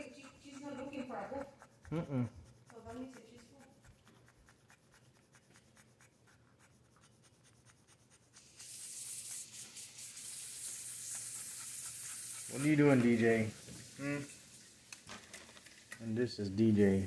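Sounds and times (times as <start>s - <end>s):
puppies suckling clicks: 2.6s - 8.4s
steady hiss: 8.4s - 15.0s.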